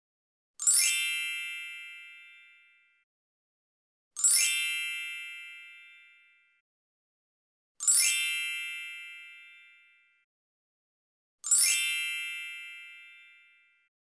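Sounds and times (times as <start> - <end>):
sparkle chime: 0.6 - 3.0, 4.2 - 6.4, 7.8 - 10.1, 11.4 - 13.8.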